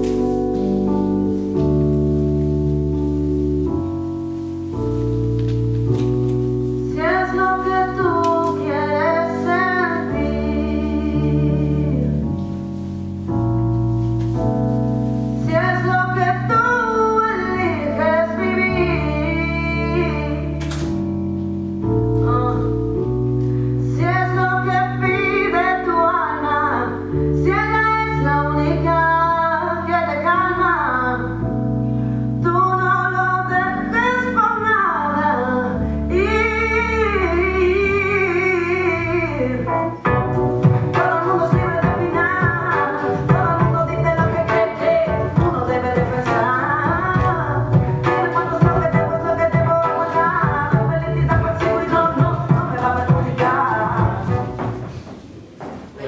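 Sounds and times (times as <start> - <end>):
keyboard chords: 0.0 - 55.2
person singing: 40.8 - 54.7.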